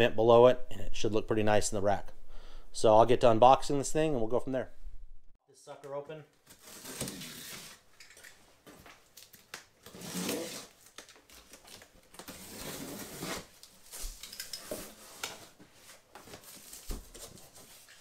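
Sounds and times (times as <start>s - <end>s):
knife slicing packing tape: 9.9s - 10.8s.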